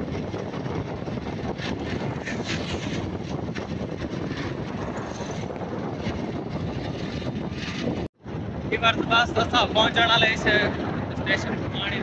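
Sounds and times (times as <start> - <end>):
vehicle engine and road noise: 0.0 - 12.0.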